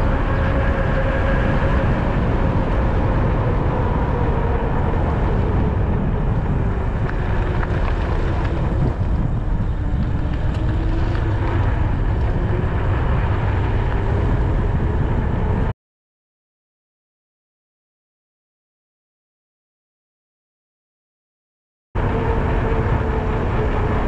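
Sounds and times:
faint whine varying in pitch: 0.0 - 15.7, 22.0 - 24.0
wind buffeting microphone: 0.0 - 15.7, 22.0 - 24.0.

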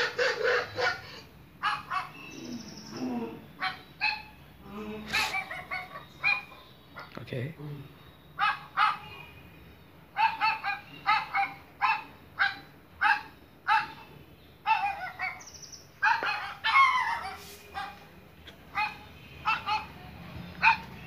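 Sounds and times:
recorded dog barks through phone speaker: 1.6 - 2.4, 5.0 - 7.2, 8.4 - 9.3, 10.2 - 21.0.

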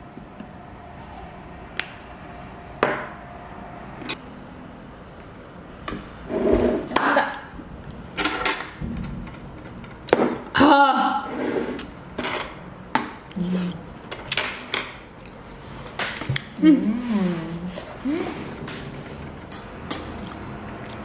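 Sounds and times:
tableware knocking and clinking: 8.2 - 10.5, 12.2 - 13.1, 19.4 - 20.4.

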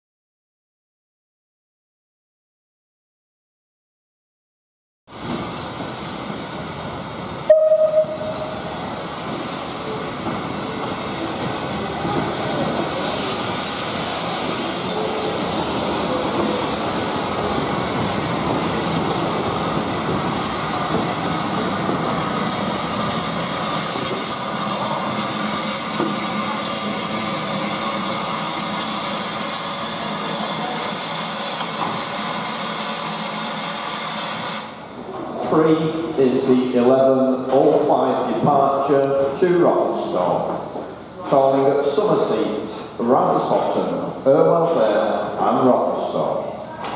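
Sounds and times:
steam locomotive hiss and rumble: 5.1 - 46.9
steam locomotive whistle: 7.5 - 8.7.

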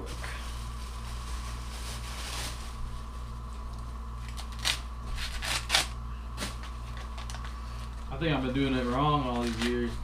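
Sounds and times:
steady low hum: 0.0 - 10.0
corn husks ripping: 4.2 - 7.5, 8.1 - 10.0.

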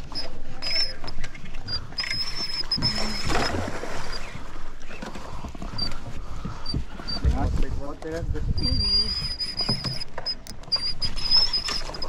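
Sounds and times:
water noise: 0.0 - 12.0
wind: 0.0 - 12.0.

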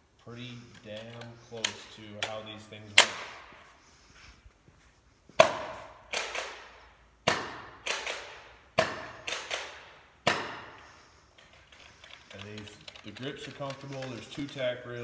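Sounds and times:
toy pistol shots: 5.5 - 10.7.

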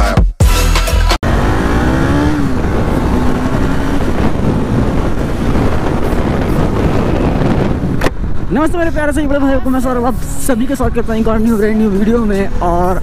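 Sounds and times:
motorcycle engine revving: 1.2 - 8.5
wind and road noise: 1.2 - 13.0.

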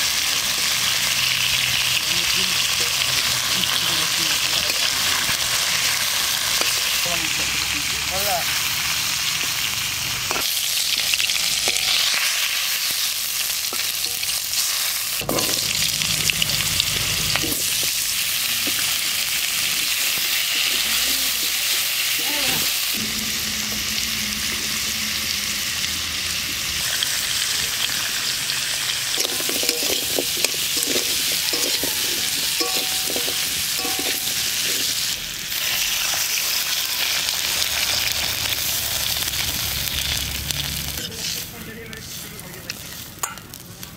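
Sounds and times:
food sizzling in hot oil: 0.0 - 43.9
metal spatula scraping pan: 29.1 - 35.2.

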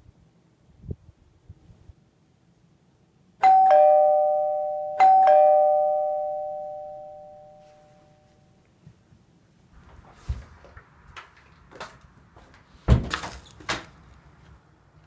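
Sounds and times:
two-tone doorbell chime: 3.4 - 8.6.

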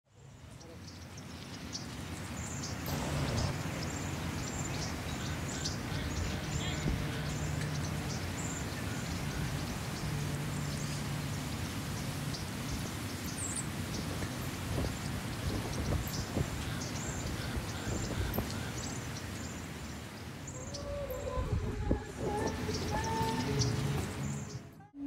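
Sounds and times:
small birds chirping: 0.2 - 24.8
steady background rush: 2.2 - 19.2.

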